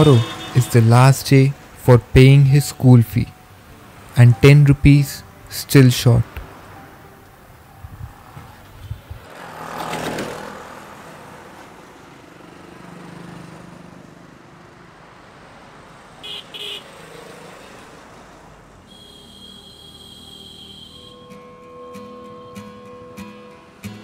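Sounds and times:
vehicle passing: 0.0s - 2.3s, 6.2s - 18.8s.

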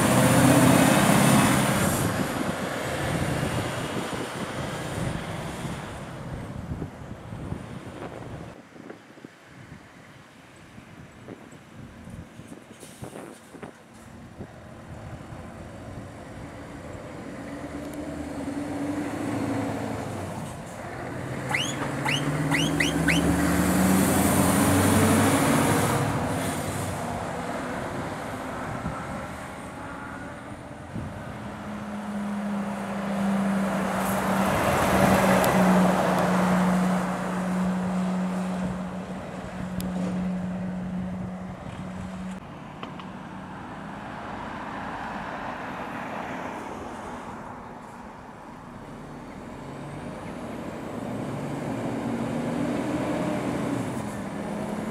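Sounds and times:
heavy lorries driving past: 0.0s - 8.5s, 13.8s - 54.9s
lorry engine rising in pitch: 21.1s - 26.3s.

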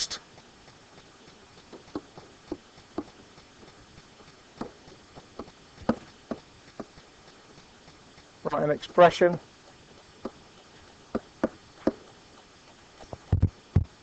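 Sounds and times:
stylus tapping on tablet: 1.6s - 3.5s, 11.1s - 12.1s.

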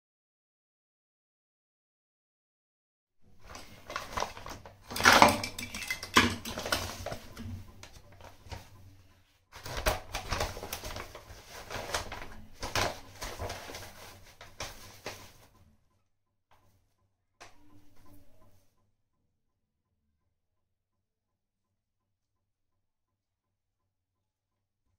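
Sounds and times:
plastic bag crinkling: 3.4s - 8.6s, 9.6s - 15.4s
clicks and knocks: 4.9s - 7.7s.

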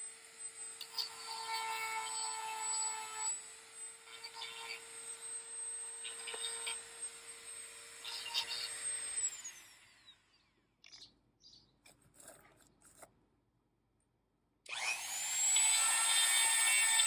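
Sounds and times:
rotary tool high whine: 0.0s - 10.6s, 14.7s - 17.0s
faint handling sounds: 11.7s - 14.1s.

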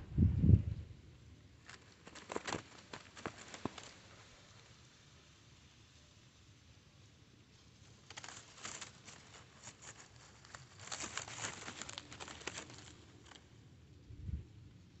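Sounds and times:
hands rustling gear: 8.2s - 13.4s.

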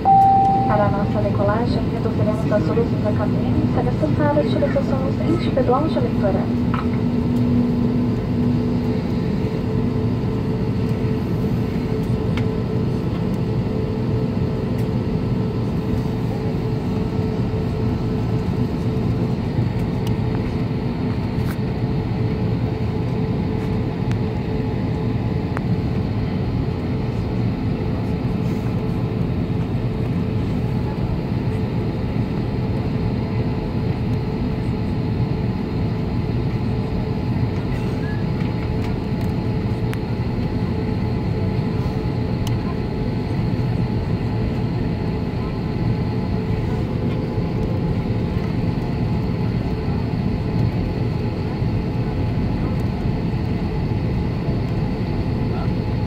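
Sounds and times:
jet engines humming: 0.0s - 56.0s.

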